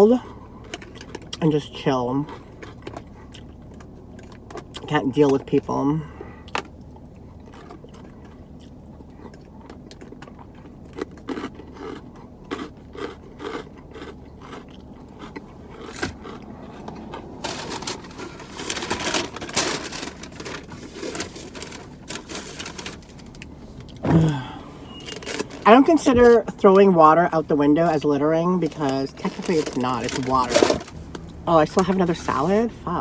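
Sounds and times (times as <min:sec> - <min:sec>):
crunchy chewing: 0:00.2 - 0:01.5, 0:02.1 - 0:04.9, 0:06.2 - 0:24.0
crinkling and rustling: 0:15.3 - 0:24.2, 0:25.0 - 0:26.9, 0:28.6 - 0:32.6
paper bag rustling: 0:17.4 - 0:23.4, 0:25.0 - 0:26.4, 0:28.8 - 0:31.1.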